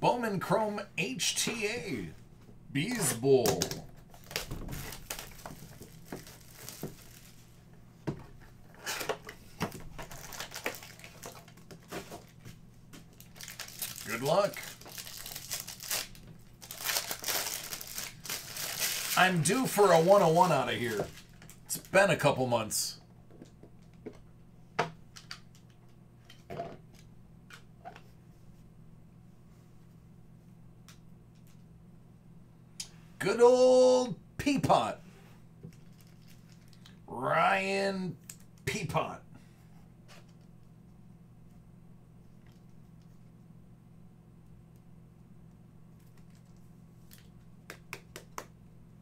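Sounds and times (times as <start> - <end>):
steady low hum: 0.0 - 49.0
hands rustling cards: 2.9 - 7.5, 8.7 - 21.9
foil pack crinkling: 3.6 - 7.5, 9.8 - 12.4, 13.0 - 22.0, 35.7 - 36.9.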